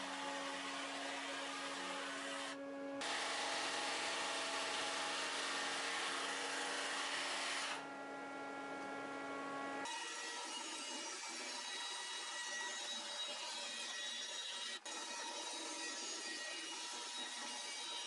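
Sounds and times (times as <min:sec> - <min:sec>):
sander motor tone: 0:00.0 - 0:09.9
bandsaw cutting wood: 0:00.0 - 0:11.2.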